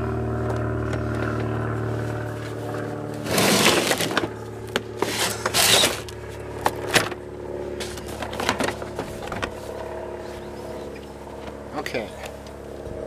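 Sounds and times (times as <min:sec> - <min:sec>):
low engine hum: 0:00.0 - 0:13.0
plastic cover scraping: 0:03.2 - 0:04.4, 0:05.0 - 0:06.0.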